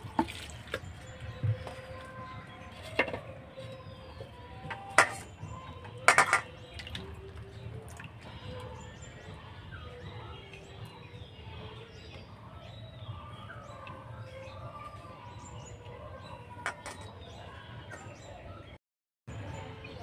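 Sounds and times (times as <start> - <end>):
water splashing in bowl: 0.0 - 3.4, 6.0 - 8.8
small birds chirping: 0.1 - 20.0.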